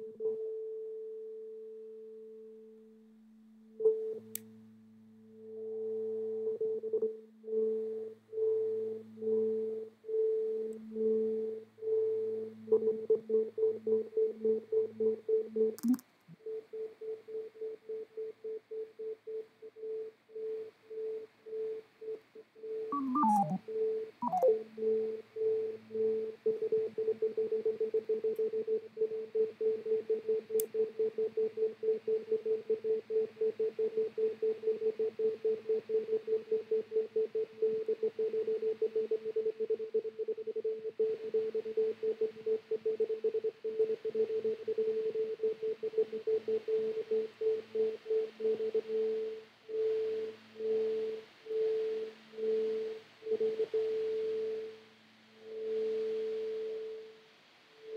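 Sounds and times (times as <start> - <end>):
lower electronic tone: 22.6 - 26.3
pulsing electronic tone: 22.9 - 25.1.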